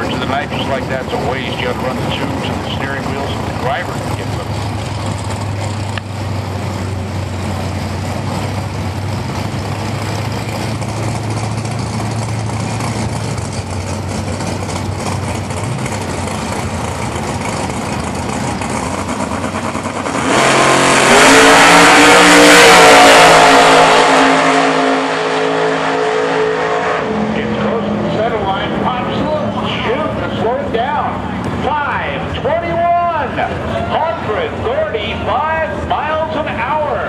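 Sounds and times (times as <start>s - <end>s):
car engine running and launching: 7.4s - 30.0s.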